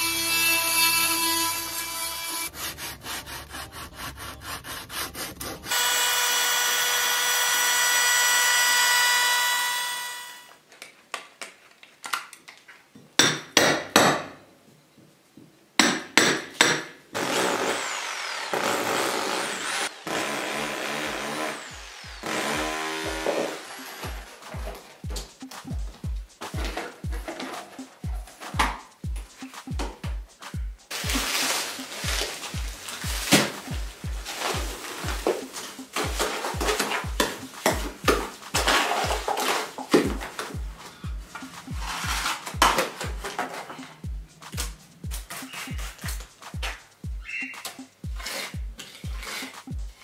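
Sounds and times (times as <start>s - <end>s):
oscillating multi-tool buzzing: 0.0s - 2.5s, 5.7s - 10.6s, 17.4s - 24.5s.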